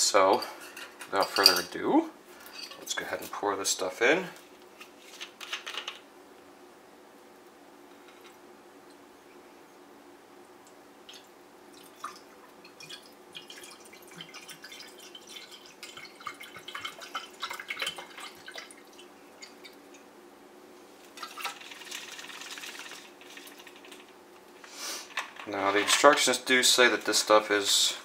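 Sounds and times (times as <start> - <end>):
liquid pouring and splashing: 11.0 - 19.8, 21.1 - 24.0.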